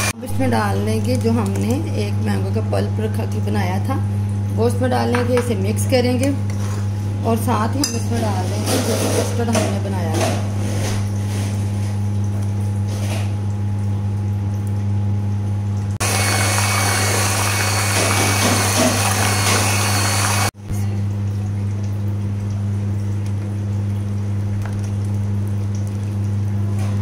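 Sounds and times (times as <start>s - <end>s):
electric hand mixer whisking: 16.0s - 20.6s.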